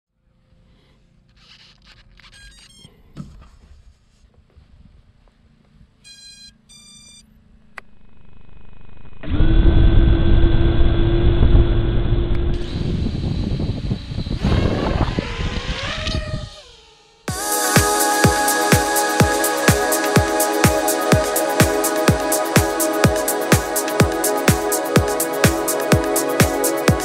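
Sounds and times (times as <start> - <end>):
short electronic beeps: 6.1 - 7.3
electronic music with beat: 17.3 - 27.0.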